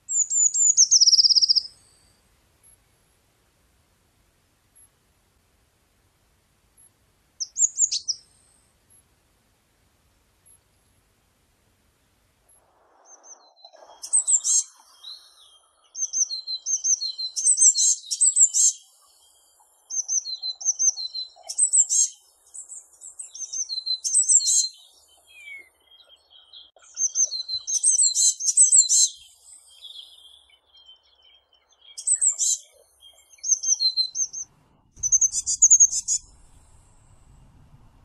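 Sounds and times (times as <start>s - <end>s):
small bird singing high thin notes: 0.1s - 2.1s, 7.4s - 8.4s, 13.1s - 19.0s, 19.9s - 31.0s, 31.8s - 37.3s.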